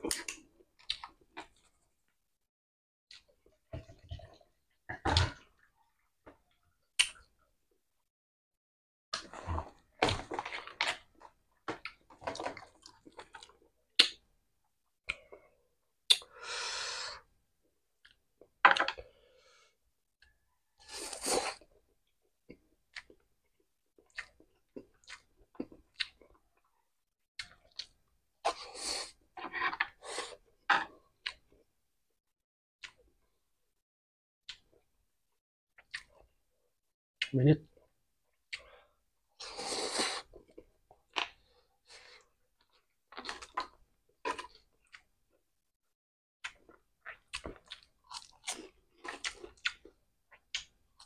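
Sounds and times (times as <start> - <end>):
chewing crispy food: 40.3 - 45.4, 46.4 - 51.0.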